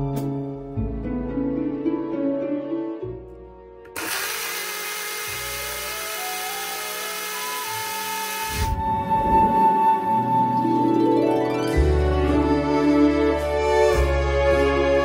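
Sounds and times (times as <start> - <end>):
blender motor running: 3.9 - 8.7.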